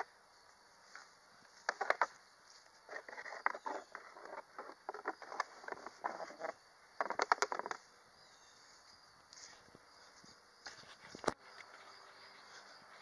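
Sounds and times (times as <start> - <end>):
footsteps in grass and gravel: 0.8 - 4.7.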